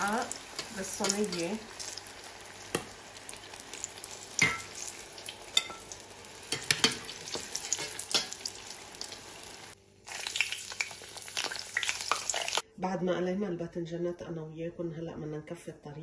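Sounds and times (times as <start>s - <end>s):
slices frying in oil: 0.0s - 12.6s
metal spatula clinking on pot: 0.6s - 1.5s, 4.4s - 4.8s, 5.5s - 5.9s, 6.5s - 8.4s.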